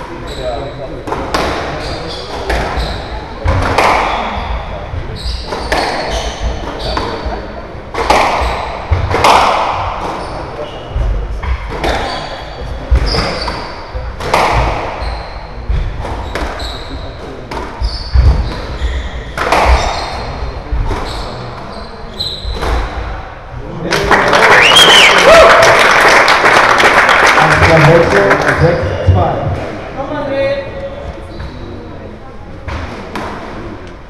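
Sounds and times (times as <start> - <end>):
shoes squeaking on wooden floor: 1.7 - 7.4, 8.4 - 9.1, 10.0 - 22.9, 30.8 - 31.9
squash ball cracking: 3.4 - 4.2, 7.9 - 10.3
crowd applauding: 23.9 - 28.8.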